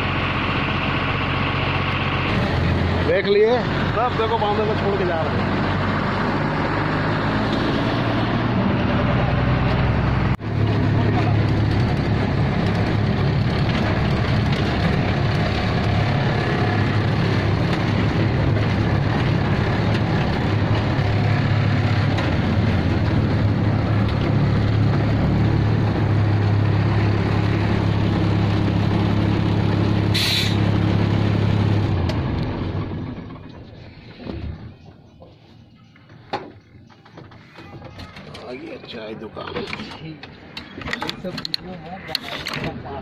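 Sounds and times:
diesel truck engine running: 0.0s - 41.6s
short sharp hiss: 30.2s - 30.6s.

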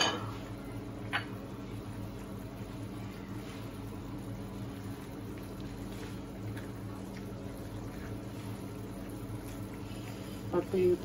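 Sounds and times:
food simmering and bubbling: 0.0s - 11.0s
steady low hum: 0.0s - 11.0s
spatula stirring: 4.5s - 11.0s.

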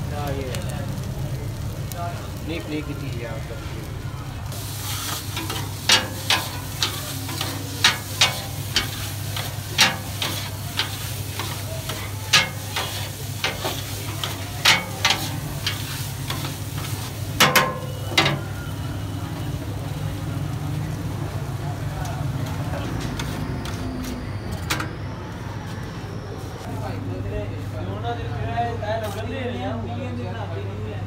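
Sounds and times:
food sizzling on a griddle: 0.0s - 24.2s
metal utensil scraping griddle: 4.5s - 18.5s, 22.4s - 24.8s.

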